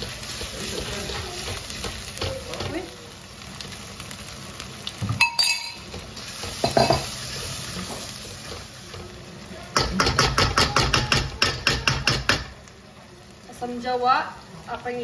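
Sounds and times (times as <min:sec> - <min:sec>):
utensils knocking on wok: 0:00.0 - 0:02.9, 0:05.0 - 0:07.2, 0:09.7 - 0:12.6
paste sizzling in oil: 0:00.0 - 0:15.0.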